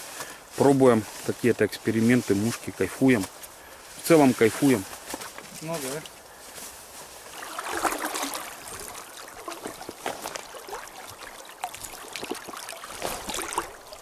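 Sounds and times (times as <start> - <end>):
small splashes: 7.1 - 14.0
river water babbling: 7.2 - 14.0.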